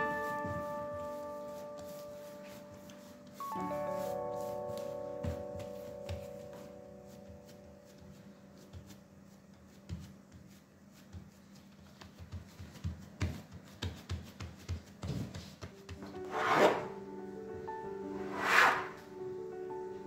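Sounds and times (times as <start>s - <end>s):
hands patting dough: 0.0s - 16.2s
bench scraper scraping board: 16.1s - 16.9s, 18.2s - 19.0s.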